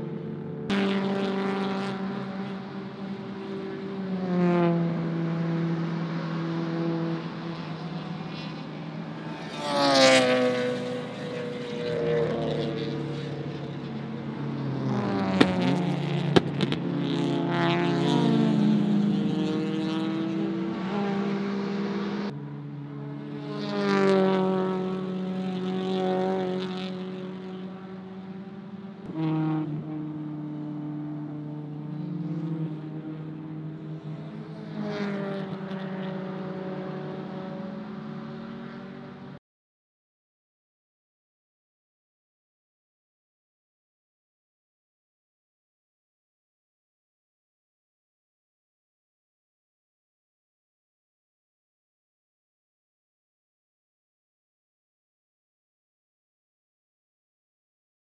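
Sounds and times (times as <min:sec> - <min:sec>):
race car engines revving: 0:00.0 - 0:39.4
sharp pops: 0:15.4 - 0:15.7, 0:16.3 - 0:16.8.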